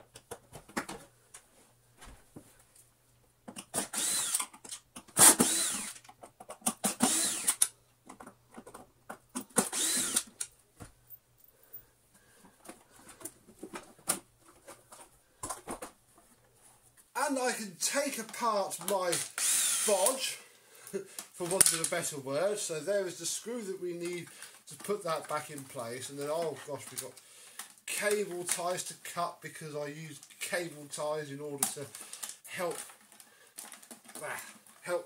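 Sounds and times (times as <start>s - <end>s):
plastic parts clicking and knocking: 0.0s - 1.5s, 3.4s - 11.0s, 12.4s - 16.5s, 21.2s - 22.0s, 31.6s - 34.8s
cordless drill whirring: 3.7s - 4.6s, 5.2s - 6.0s, 6.8s - 7.7s, 9.5s - 10.5s, 19.2s - 20.0s.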